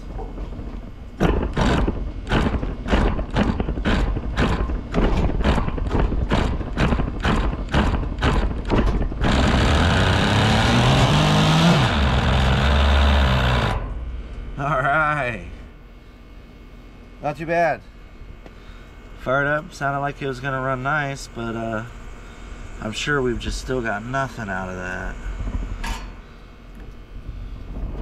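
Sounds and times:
model engine cranking and running: 1.2s - 13.8s.

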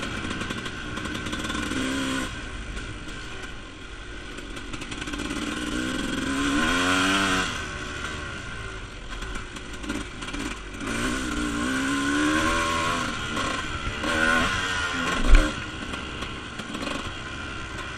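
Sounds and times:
dirt bike engine revving: 0.0s - 2.5s, 4.4s - 17.9s
sharp thump: 15.1s - 15.6s.

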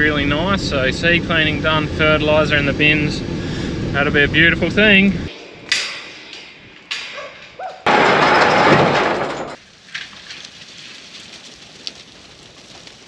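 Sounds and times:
sheep moving over dry dirt: 9.6s - 13.0s.

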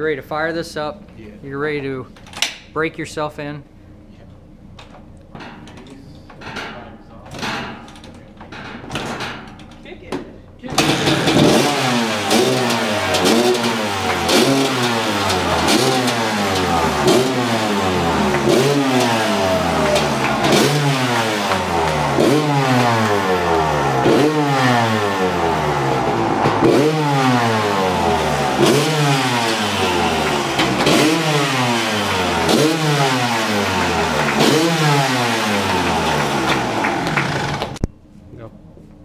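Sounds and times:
dirt bike engine revving: 10.7s - 37.8s.

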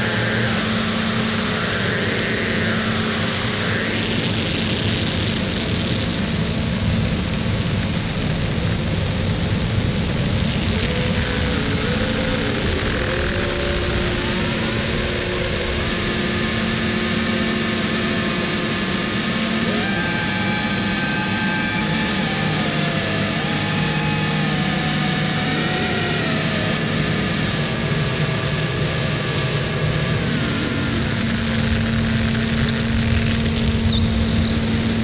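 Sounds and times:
distorted electronic noise: 0.0s - 35.0s
low drone: 0.0s - 35.0s
wavering pitched tones: 10.6s - 35.0s.

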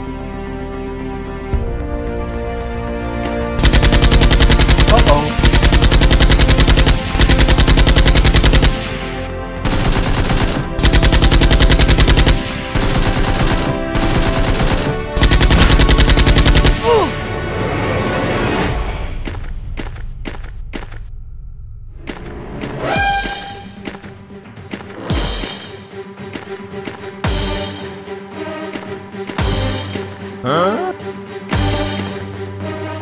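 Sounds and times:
background music: 0.0s - 20.0s, 21.9s - 33.0s
automatic gunfire bursts: 3.6s - 16.8s.

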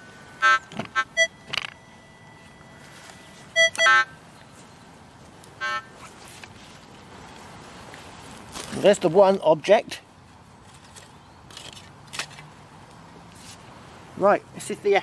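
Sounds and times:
metal detector beeps: 0.4s - 4.1s.

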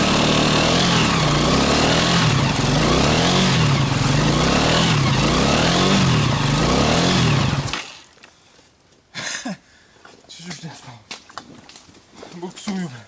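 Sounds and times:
atv engine revving: 0.0s - 8.1s.

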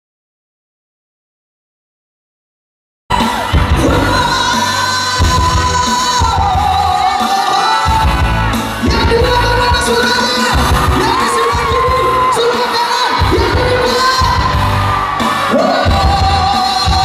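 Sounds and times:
live pop band: 3.1s - 17.0s
man singing long notes: 15.4s - 17.0s.

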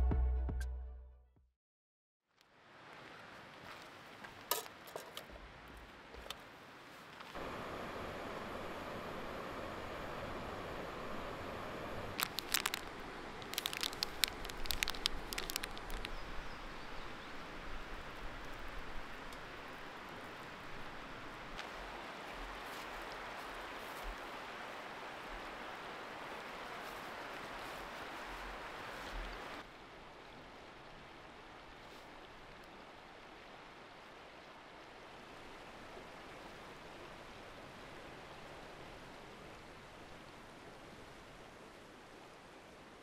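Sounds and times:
river rushing: 5.9s - 43.0s
footsteps crunching through dry leaves: 12.1s - 16.2s, 21.6s - 24.3s.

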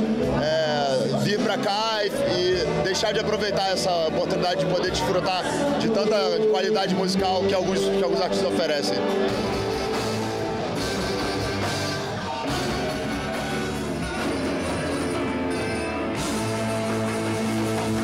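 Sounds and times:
electric guitar: 9.0s - 18.0s
rock band playing: 9.0s - 18.0s.

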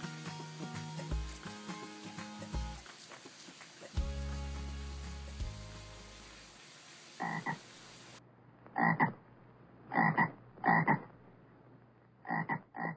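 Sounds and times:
frog croaking: 7.2s - 7.6s, 8.8s - 9.2s, 9.9s - 11.2s, 12.2s - 12.9s.

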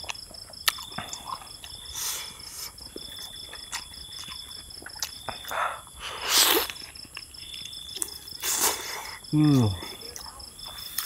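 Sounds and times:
insects chirring: 0.0s - 11.0s
frog eating clicks and smacks: 2.8s - 5.7s.

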